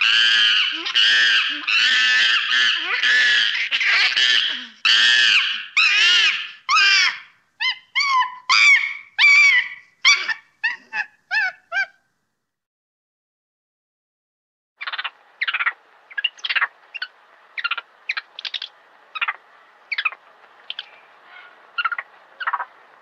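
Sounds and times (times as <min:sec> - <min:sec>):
young monkey screaming: 0:00.0 - 0:12.0, 0:14.8 - 0:22.7.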